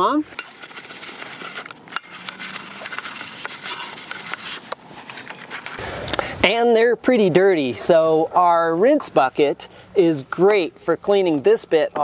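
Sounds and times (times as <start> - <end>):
sponge scrubbing wet wheel: 0.0 - 5.8.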